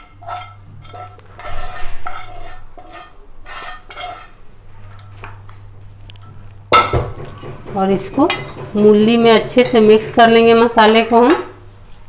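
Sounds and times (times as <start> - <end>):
metal spoon scraping pan: 0.0 - 4.4.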